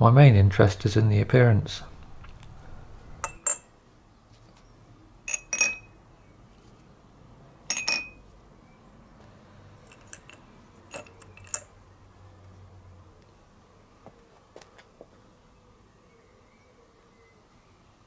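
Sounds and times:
nuts and bolts clinking on glass: 0:03.2 - 0:03.7, 0:05.3 - 0:06.0, 0:07.6 - 0:08.3, 0:09.8 - 0:11.8.

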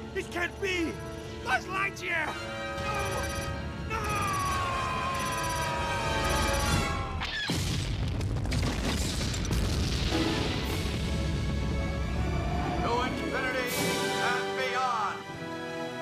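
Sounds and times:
cartoon explosion rumbling: 0:06.5 - 0:11.2.

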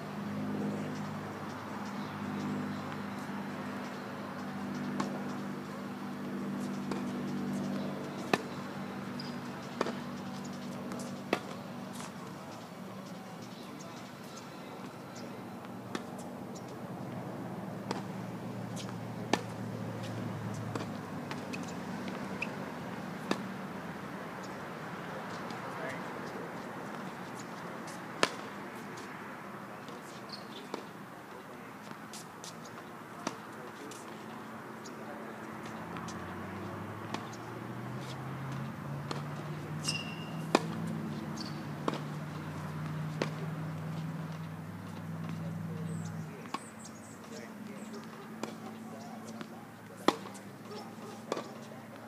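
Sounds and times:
tennis ball struck by racket: 0:06.6 - 0:07.1, 0:07.7 - 0:08.6, 0:09.2 - 0:12.2, 0:15.9 - 0:16.2, 0:17.8 - 0:22.6, 0:23.2 - 0:23.5, 0:26.9 - 0:29.1, 0:31.9 - 0:34.2, 0:35.6 - 0:45.5, 0:46.4 - 0:46.6, 0:48.0 - 0:51.7
shoe squeak on court: 0:09.1 - 0:09.5, 0:30.2 - 0:30.6, 0:39.8 - 0:42.1
ball bouncing on hard court: 0:38.0 - 0:44.5.

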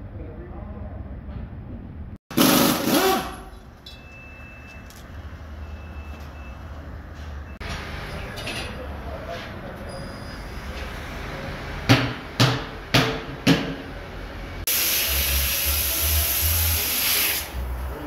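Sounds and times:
low tire shop noise: 0:00.0 - 0:18.0
pneumatic impact wrench: 0:02.3 - 0:03.6, 0:14.7 - 0:17.6.

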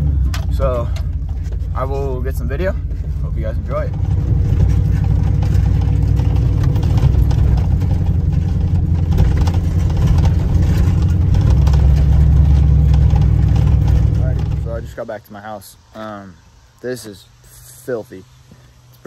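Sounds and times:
tyres rolling over dirt track: 0:00.0 - 0:15.1
truck engine rumbling: 0:00.0 - 0:15.2.

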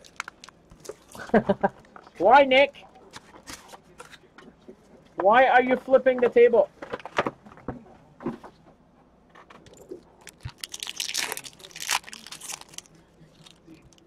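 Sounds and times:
wrapper tearing and crinkling: 0:10.2 - 0:14.0.

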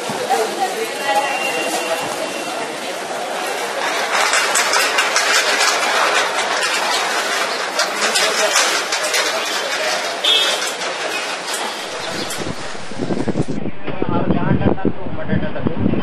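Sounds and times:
traffic noise: 0:00.0 - 0:13.7
crowd hubbub: 0:00.0 - 0:16.0
sharp clatters and clicks: 0:03.6 - 0:13.6.

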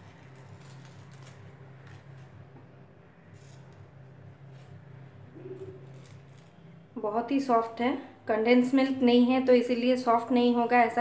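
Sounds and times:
paper crinkling: 0:00.0 - 0:02.4, 0:05.6 - 0:06.6
steady low hum: 0:00.0 - 0:11.0.

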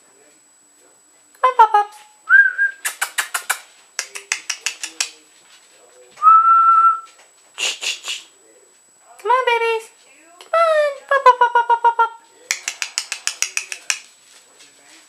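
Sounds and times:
person whistling: 0:02.3 - 0:02.9, 0:06.2 - 0:07.1
lip smacking clicks: 0:02.8 - 0:05.2, 0:12.5 - 0:14.1.

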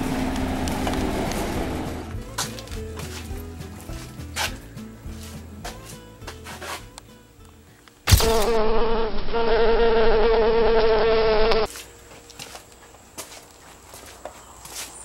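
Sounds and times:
wasp buzzing: 0:08.1 - 0:11.7.

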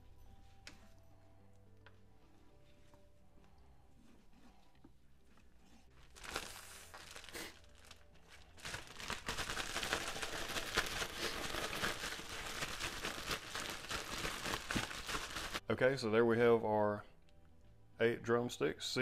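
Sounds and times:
plastic bag crinkling: 0:06.0 - 0:15.6.

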